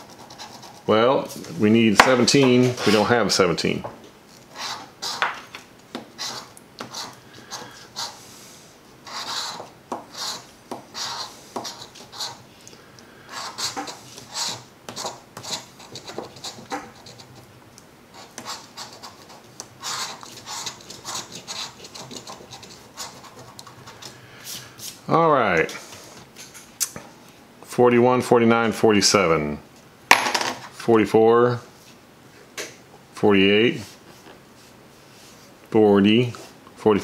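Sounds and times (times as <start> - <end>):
coin scratching lottery ticket: 0.0 - 0.9, 9.0 - 12.4, 13.3 - 17.5, 18.2 - 24.1.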